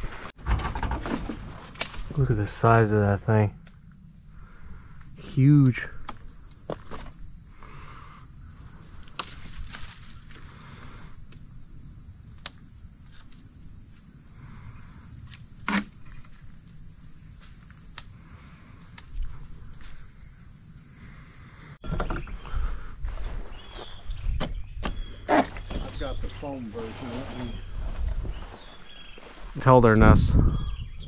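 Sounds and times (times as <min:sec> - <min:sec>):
insect chorus: 0:00.0 - 0:31.0
low rumbling handling noise: 0:23.0 - 0:29.8.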